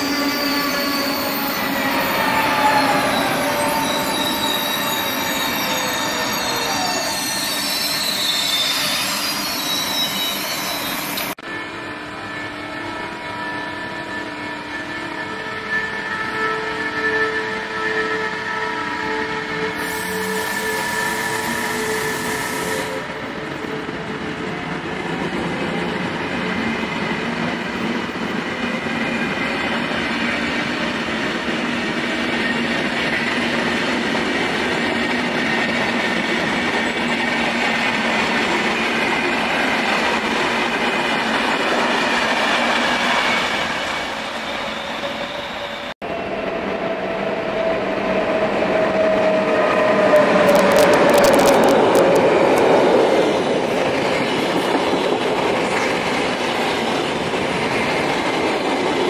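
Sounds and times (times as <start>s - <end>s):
wheel squeal: 0.0s - 11.4s, 19.8s - 23.1s
train wheels clattering on rails: 49.0s - 59.0s.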